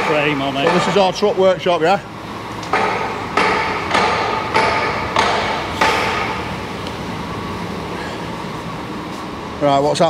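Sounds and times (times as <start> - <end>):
steady background noise: 0.0 - 10.0
hammer ringing on steel: 2.8 - 6.4.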